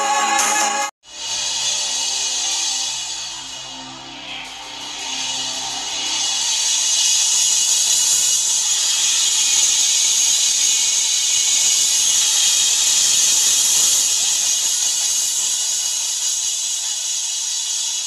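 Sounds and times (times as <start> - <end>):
crowd cheering and applauding: 0.0 - 0.9.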